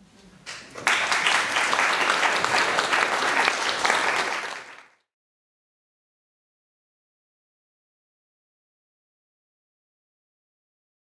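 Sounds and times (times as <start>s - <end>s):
audience applauding: 0.5s - 5.0s.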